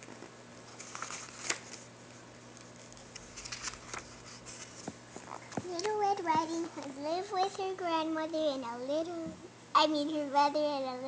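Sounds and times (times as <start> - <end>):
book pages turning: 0.0 - 7.6.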